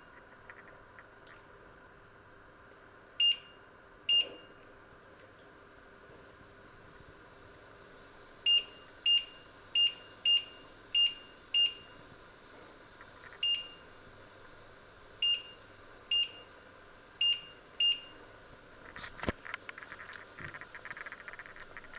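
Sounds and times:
hob control panel beeps: 0:03.2 - 0:04.6, 0:08.5 - 0:12.0, 0:13.4 - 0:13.9, 0:15.2 - 0:16.6, 0:17.2 - 0:18.2.

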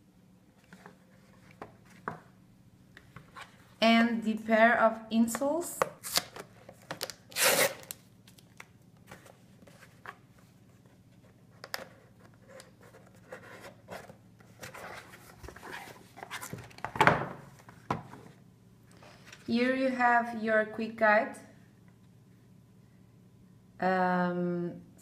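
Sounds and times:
cardboard scraping rustle: 0:12.4 - 0:16.8.

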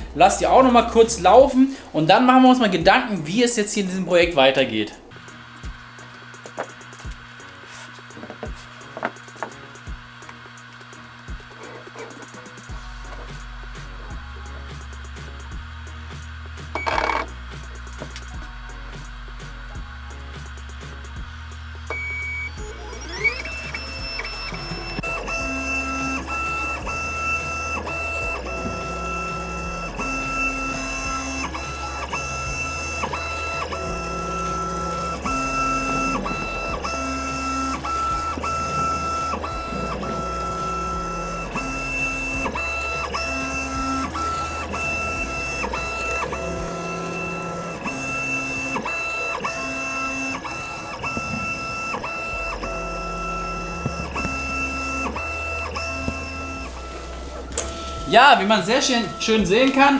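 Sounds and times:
stepper motors whining: 0:00.0 - 0:59.9.

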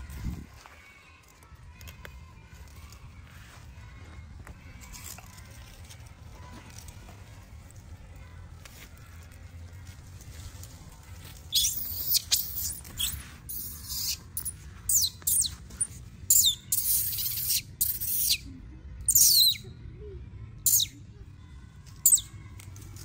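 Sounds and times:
baby monkey shrieking: 0:11.5 - 0:15.6, 0:16.3 - 0:18.5, 0:19.1 - 0:19.6, 0:20.6 - 0:21.0, 0:22.0 - 0:22.3.

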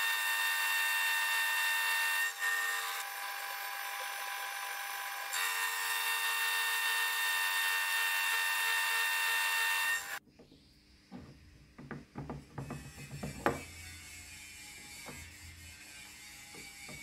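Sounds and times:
milling machine cutting metal: 0:00.0 - 0:10.2.

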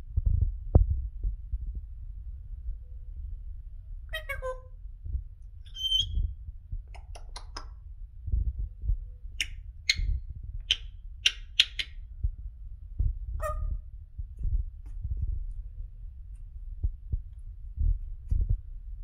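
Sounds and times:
low thumping rumble: 0:00.0 - 0:04.2, 0:04.8 - 0:07.0, 0:07.7 - 0:11.2, 0:12.0 - 0:19.0
parrot clicks and squeaks: 0:05.7 - 0:06.2, 0:06.9 - 0:07.7, 0:09.4 - 0:12.0
parrot whistling: 0:05.7 - 0:06.2.

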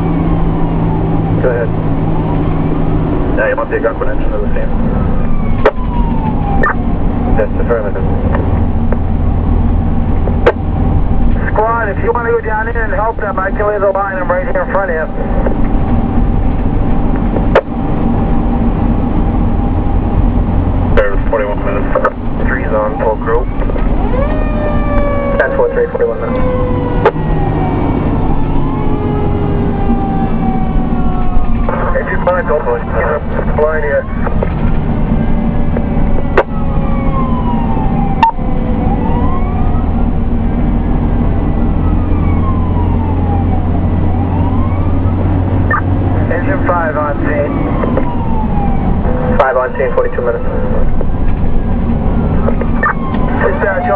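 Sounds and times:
engine drone and road noise: 0:00.0 - 0:53.9
fire engine siren wailing: 0:00.0 - 0:53.9
sharp clicks: 0:52.5 - 0:53.2.

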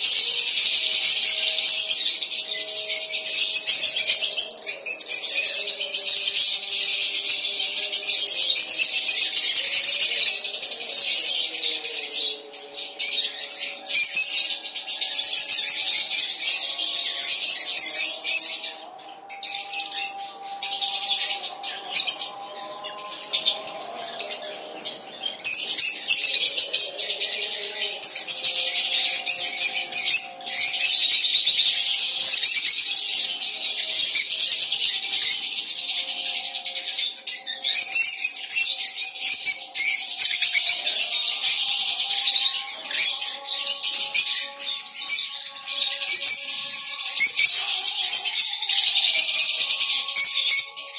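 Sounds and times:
birds chattering and chirping: 0:00.0 - 0:50.9
quiet music: 0:00.0 - 0:50.9.

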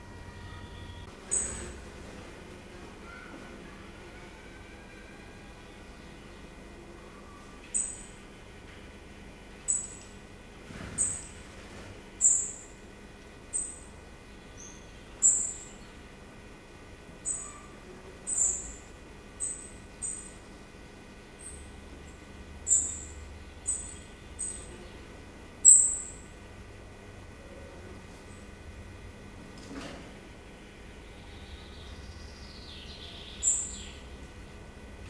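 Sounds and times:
songbird high-pitched calls: 0:00.0 - 0:01.8, 0:03.0 - 0:06.2, 0:07.0 - 0:08.2, 0:09.6 - 0:10.1, 0:11.0 - 0:11.3, 0:12.2 - 0:12.8, 0:13.5 - 0:16.0, 0:17.1 - 0:20.4, 0:21.4 - 0:26.3, 0:31.1 - 0:34.1.

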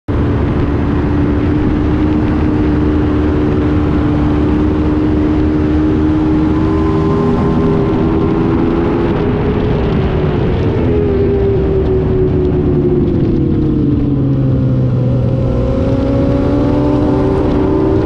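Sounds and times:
wind rumble: 0:00.1 - 0:18.0
motorcycle engine revving hard: 0:00.2 - 0:09.8, 0:14.8 - 0:18.0.

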